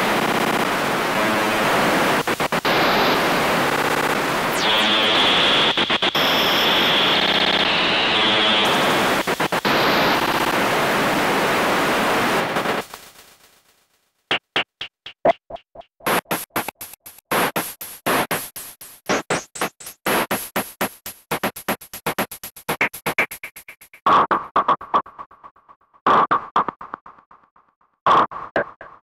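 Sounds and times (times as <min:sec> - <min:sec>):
electronic white noise hiss: 0:00.0 - 0:13.9, 0:16.1 - 0:23.3
rapid bursts of noise: 0:00.0 - 0:14.9, 0:16.0 - 0:27.3.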